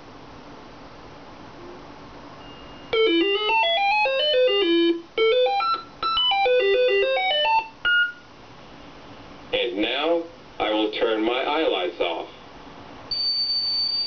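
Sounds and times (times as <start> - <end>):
electronic beeping tune: 2.4 - 8.2.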